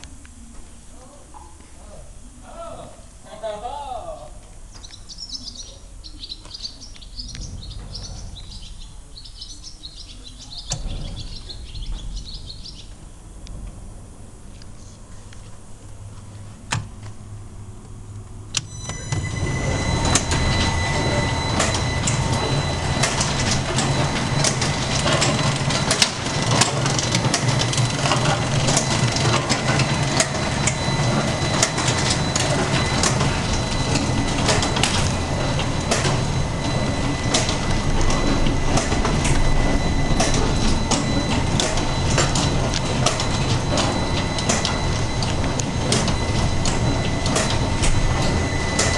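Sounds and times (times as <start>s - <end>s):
low machine hum: 0.0s - 48.9s
thin steady whine: 0.0s - 48.9s
machine clatter of rapid clicks: 18.6s - 48.9s.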